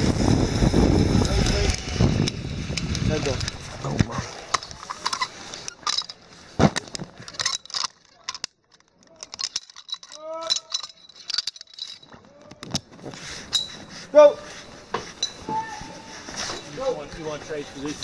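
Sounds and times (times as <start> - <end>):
metal hardware clinking: 3.1 - 12.8, 13.4 - 13.9.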